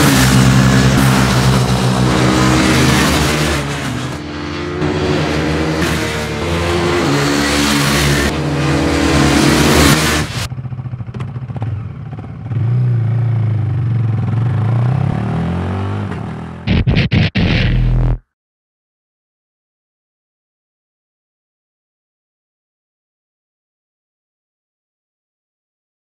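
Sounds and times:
motorcycle engines revving hard: 0:00.0 - 0:10.5, 0:14.0 - 0:16.8
motorcycle engine at low revs: 0:00.0 - 0:16.8.

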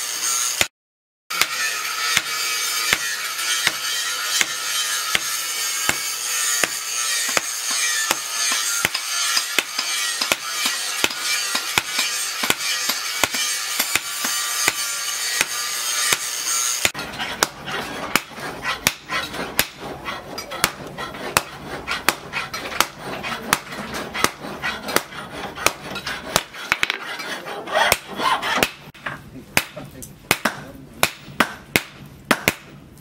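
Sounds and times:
hammer ringing on anvil: 0:01.3 - 0:16.4.

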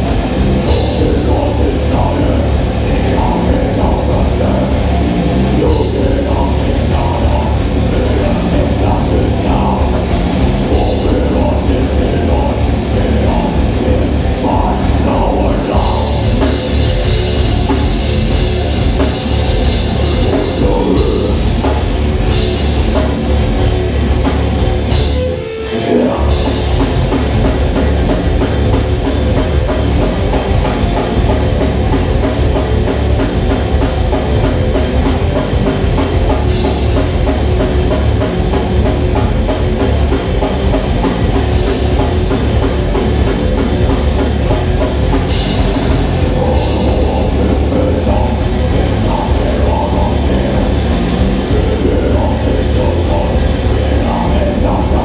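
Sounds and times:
distorted electric guitar: 0:00.0 - 0:55.0
heavy metal band playing live: 0:00.0 - 0:55.0
pounding drum kit: 0:00.0 - 0:55.0.

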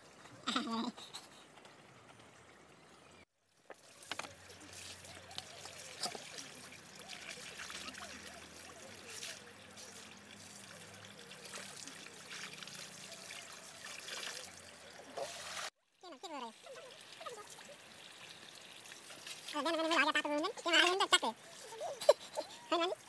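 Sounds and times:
water pouring into steel bowl: 0:03.7 - 0:15.8.

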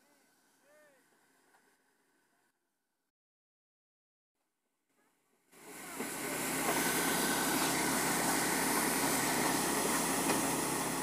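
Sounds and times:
combine harvester running: 0:05.6 - 0:11.0.

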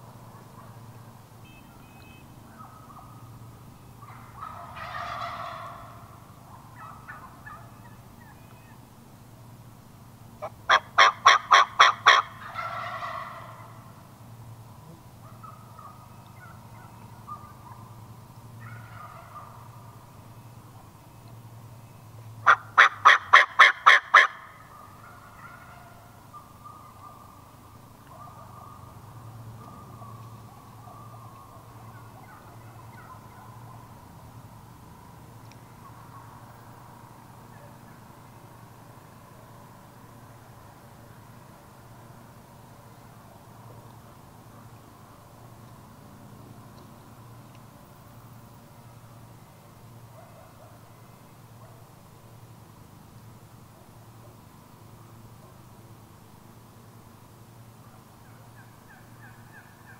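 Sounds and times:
wild turkeys calling: 0:00.3 - 0:09.1, 0:10.3 - 0:14.1, 0:14.8 - 0:34.0, 0:35.4 - 0:39.7, 0:57.7 - 0:59.9.

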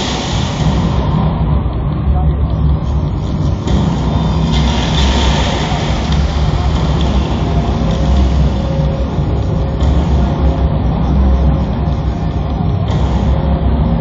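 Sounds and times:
crowd noise: 0:00.0 - 0:14.0
deep pulsing bass over pa: 0:00.0 - 0:14.0.

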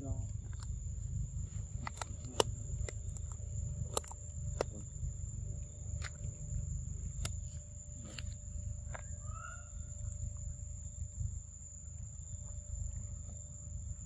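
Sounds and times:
steady low rumble: 0:00.0 - 0:14.0
sharp clicks: 0:01.7 - 0:05.0.

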